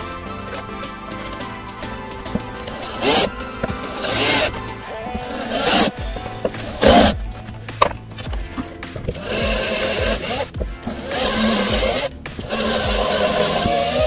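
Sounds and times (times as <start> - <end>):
background music with steady beat: 0.0 - 14.0
cordless drill running: 2.4 - 4.6, 5.2 - 6.0, 6.6 - 7.5, 9.1 - 14.0.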